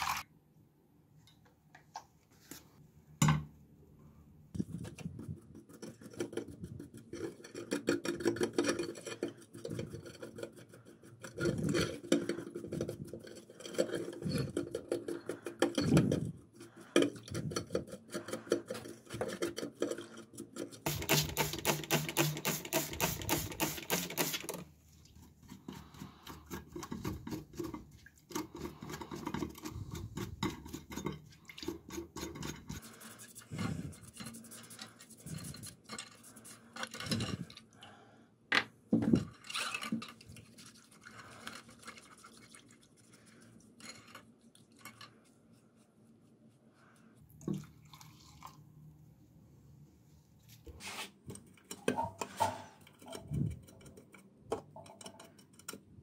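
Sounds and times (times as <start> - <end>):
brush scrubbing in soapy water: 17.8 - 24.4, 25.2 - 36.8, 40.2 - 43.8, 50.7 - 51.2.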